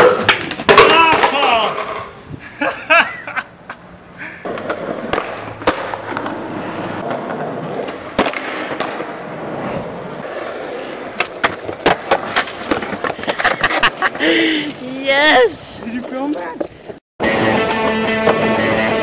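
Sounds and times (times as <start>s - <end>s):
skateboard clacking on ground: 0.0s - 2.2s, 4.4s - 9.4s, 10.1s - 17.0s
skateboard wheels rolling on concrete: 0.0s - 19.0s.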